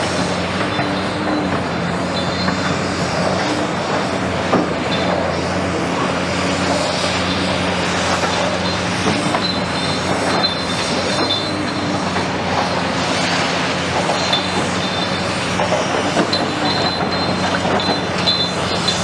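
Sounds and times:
diesel engine drone: 0.0s - 19.0s
high metallic squeals: 0.4s - 4.0s, 6.6s - 19.0s.

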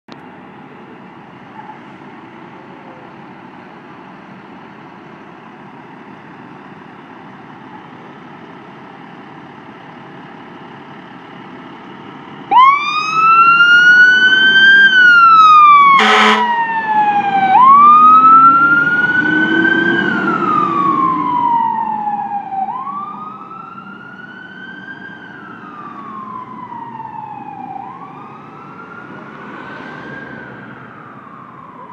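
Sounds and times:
fire engine idling: 0.1s - 17.9s
siren wailing: 12.5s - 31.9s
engine revving: 12.6s - 23.3s
horn blast: 15.9s - 16.6s.

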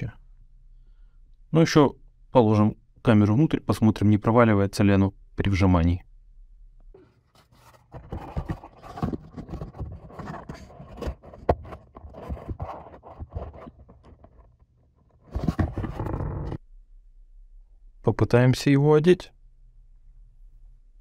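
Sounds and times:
plastic housing scrapes and knocks: 7.0s - 16.6s.

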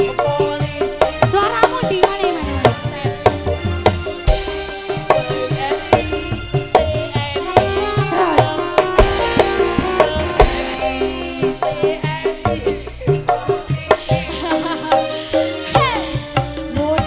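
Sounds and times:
live band playing fast music: 0.0s - 17.0s.

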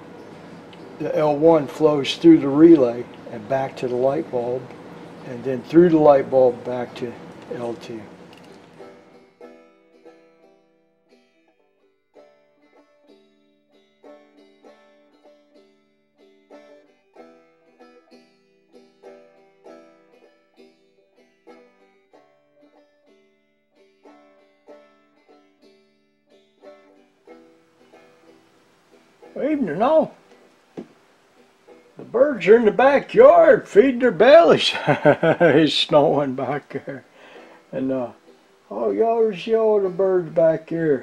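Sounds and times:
plucked string instrument music: 0.0s - 41.0s.

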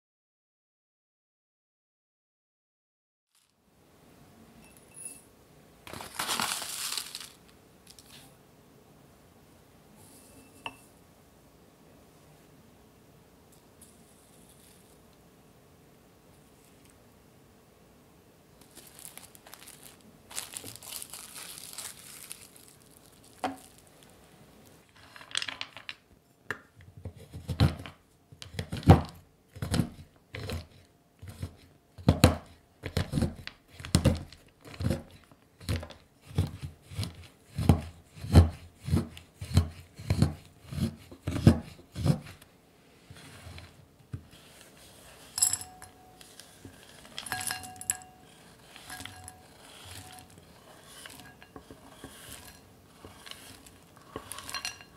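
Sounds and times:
soft rustle: 5.9s - 8.3s, 18.6s - 24.8s
knife chopping on wooden board: 34.8s - 42.3s
chocolate clinking into glass bowl: 45.2s - 54.9s.

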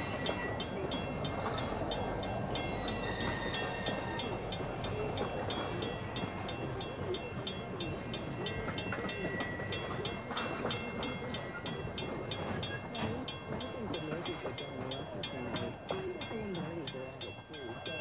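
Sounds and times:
crossing warning bell ringing: 0.0s - 18.0s
train coaches rumbling past: 0.0s - 18.0s.

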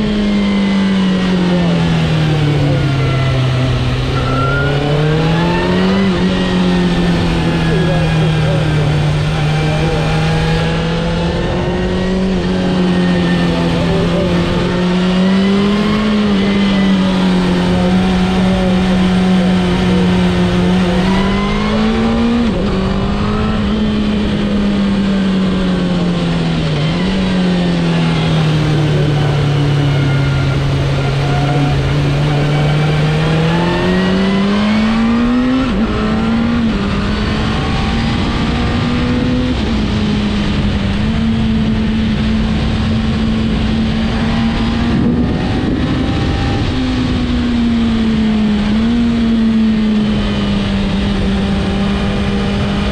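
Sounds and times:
motorcycle engine revving: 0.0s - 52.9s
wind rushing: 43.7s - 48.1s.

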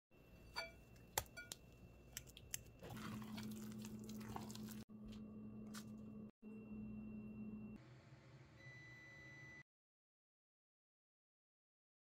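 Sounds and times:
fork clinking against glass: 0.5s - 0.8s
fork mashing banana: 0.6s - 4.8s.

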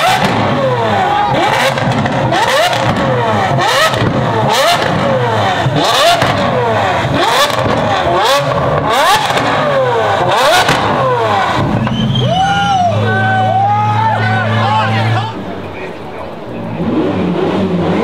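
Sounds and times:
exhaust cracks: 0.0s - 13.6s
car engine revving: 0.0s - 18.0s.

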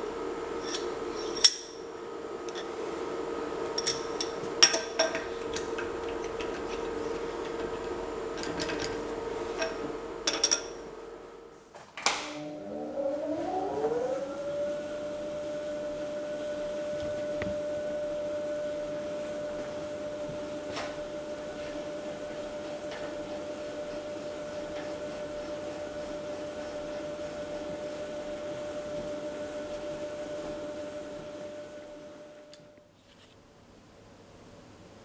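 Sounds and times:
electric motor whine: 12.1s - 20.8s.

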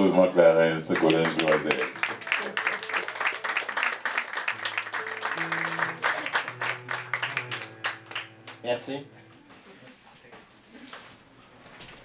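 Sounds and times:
audience applauding: 0.6s - 8.7s
instrumental music with low notes: 1.9s - 9.6s.

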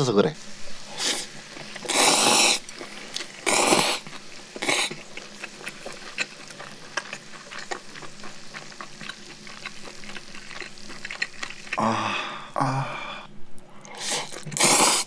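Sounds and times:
meat sizzling in a frying pan: 0.4s - 11.8s
noodles slurped from a bowl: 1.0s - 11.8s, 13.9s - 15.0s.

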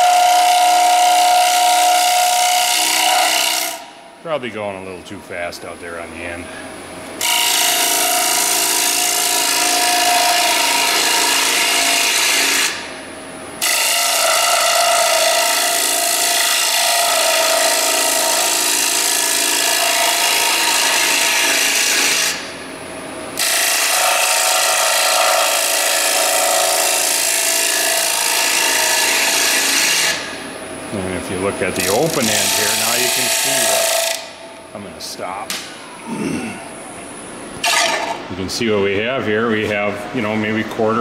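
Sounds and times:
lathe tool scraping wood: 7.2s - 12.8s, 13.6s - 22.4s, 23.4s - 30.3s, 31.3s - 34.2s.

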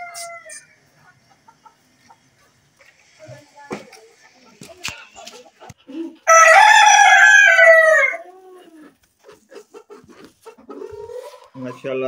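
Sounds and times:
chicken clucks: 0.0s - 7.0s, 7.8s - 12.0s
rooster crowing: 6.3s - 8.3s.

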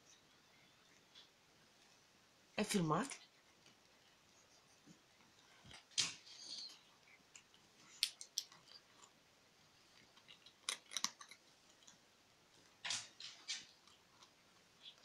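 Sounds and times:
kitten crunching dry kibble: 5.5s - 15.0s.

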